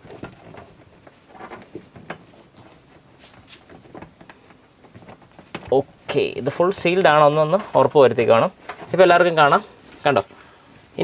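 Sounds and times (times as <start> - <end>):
plastic clicks and rustles: 0.0 - 7.9.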